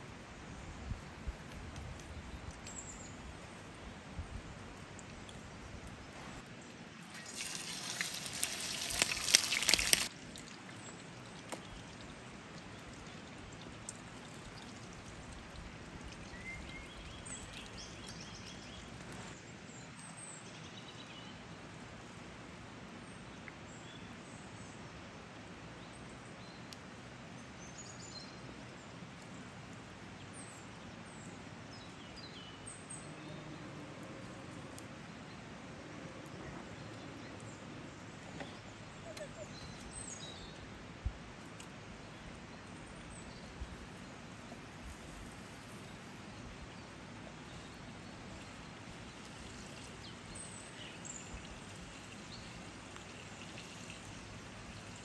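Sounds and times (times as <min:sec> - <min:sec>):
fish sizzling on grill: 0:07.1 - 0:10.1
birds chirping: 0:31.2 - 0:40.7.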